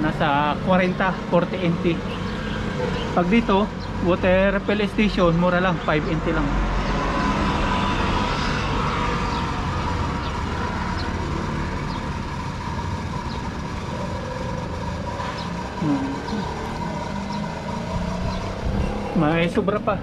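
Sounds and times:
steady high machine tone: 0.0 - 20.0.

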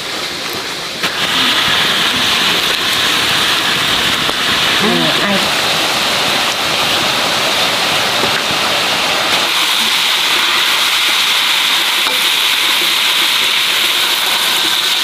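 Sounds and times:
meat sizzling in a wok: 1.0 - 15.0.

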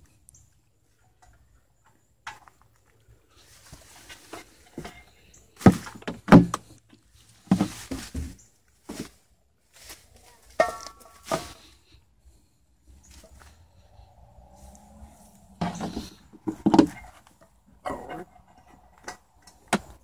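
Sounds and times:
stepping through brush: 7.2 - 11.9.

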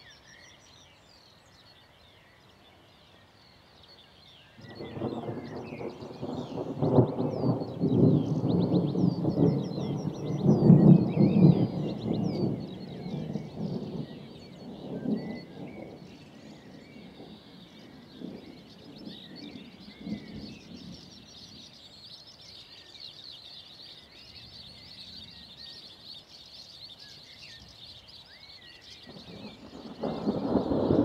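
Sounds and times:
songbirds chirping: 0.0 - 31.0
distant thunder rumbling: 4.6 - 21.7, 29.0 - 31.0.

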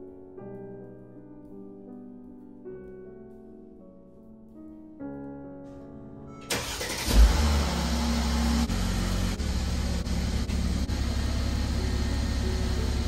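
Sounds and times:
car engine starting and idling: 6.5 - 13.0.

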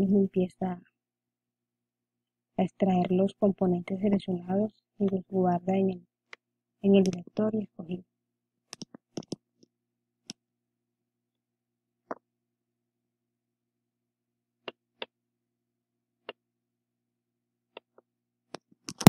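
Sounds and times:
computer mouse clicks: 8.7 - 9.4.

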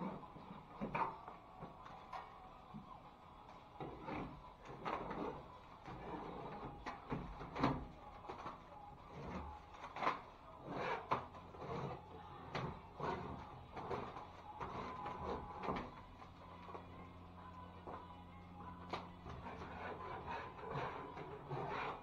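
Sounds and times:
putty knife scraping drywall: 3.8 - 7.9, 9.1 - 15.9, 19.2 - 22.0.

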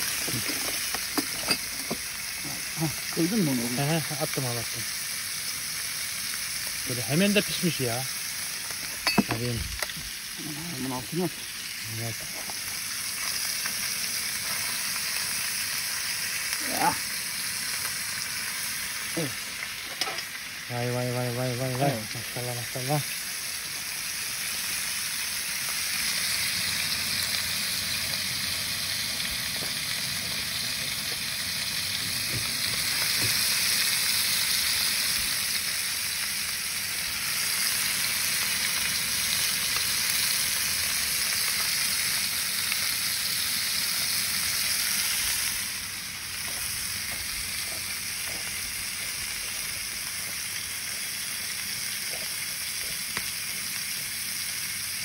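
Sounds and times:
fish frying in hot oil: 0.0 - 55.0.

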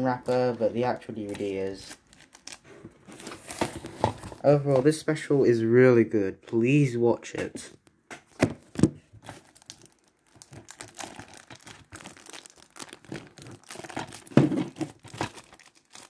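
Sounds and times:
plastic wrapping crinkling and tearing: 0.0 - 4.4, 8.6 - 16.0.

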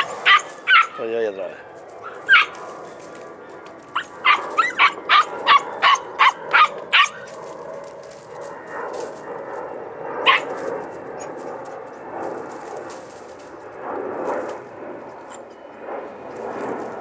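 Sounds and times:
puppy yipping: 0.0 - 1.0, 2.0 - 2.6, 3.9 - 7.3, 10.3 - 10.6.

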